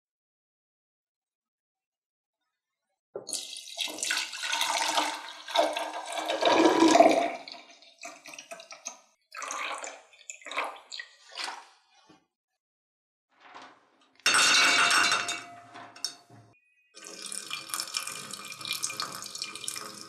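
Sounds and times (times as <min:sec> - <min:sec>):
drink fizzing: 0:03.3 - 0:11.6, 0:17.0 - 0:20.0
soft drink pouring into glass: 0:17.0 - 0:20.0.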